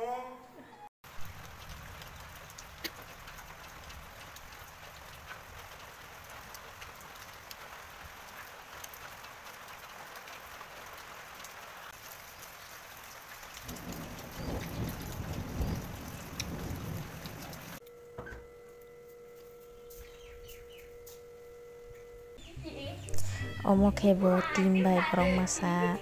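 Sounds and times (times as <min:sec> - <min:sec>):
steady rain: 0:01.0 - 0:17.9.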